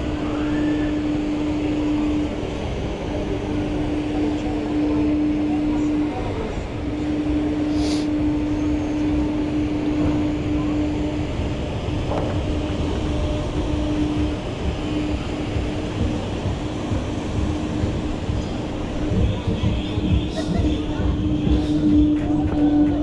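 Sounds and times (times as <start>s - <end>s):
ride machinery rumble: 0.0s - 23.0s
rush of wind: 0.0s - 23.0s
hum with repeated pulses: 6.9s - 23.0s.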